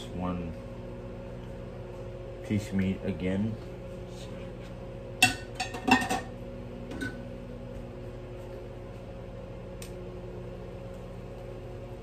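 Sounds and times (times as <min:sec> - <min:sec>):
appliance hum: 0:00.0 - 0:12.0.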